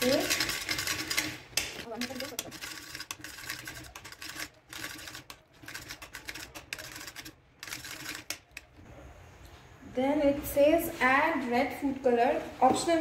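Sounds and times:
utensil stirring in metal pan: 0.0s - 8.6s.

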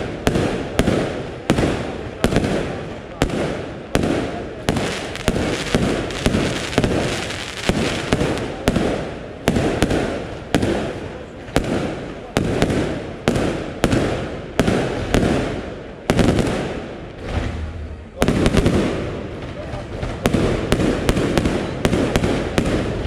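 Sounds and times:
firework shells bursting: 2.2s - 11.0s.

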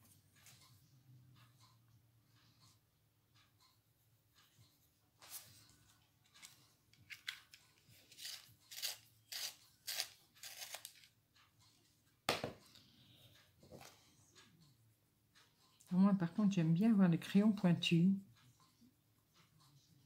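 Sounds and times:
pencil sharpener rasping: 8.0s - 11.1s.

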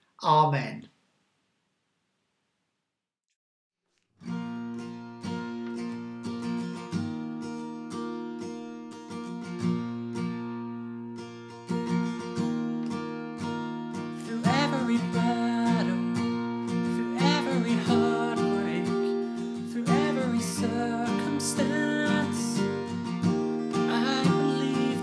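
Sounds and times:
acoustic guitar strumming: 4.2s - 25.0s
man singing: 14.2s - 16.2s, 16.9s - 22.8s, 23.8s - 25.0s.

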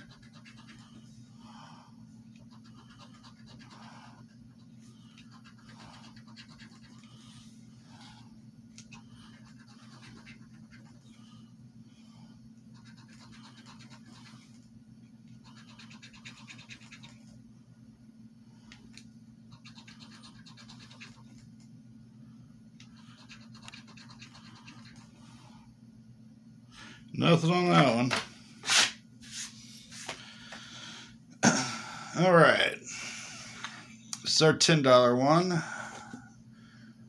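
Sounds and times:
coin scratching lottery ticket: 5.2s - 7.0s, 9.3s - 10.9s, 12.8s - 14.4s, 15.4s - 17.1s.

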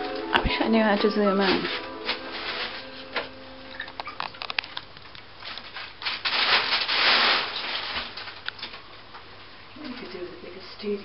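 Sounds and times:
small clicks and crackles: 3.7s - 9.2s.

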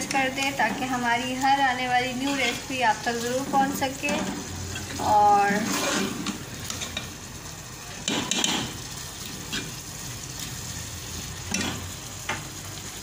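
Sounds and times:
steady sizzle: 0.0s - 13.0s
ladle scraping metal pot: 3.5s - 7.0s.

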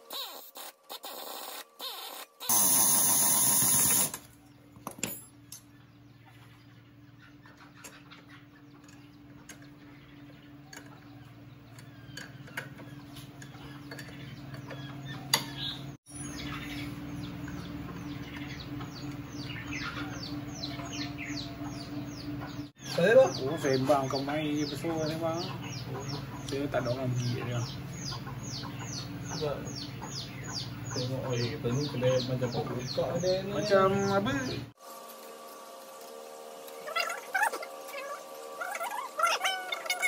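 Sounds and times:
steady low hum: 0.3s - 40.0s
pneumatic impact wrench: 2.4s - 4.3s
bird chirps: 4.3s - 34.7s, 36.8s - 40.0s.

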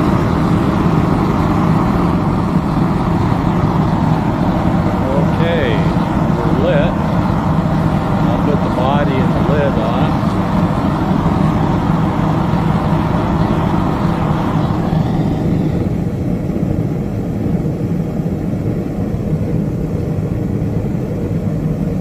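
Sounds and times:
gas burner flame rushing: 0.0s - 16.6s.

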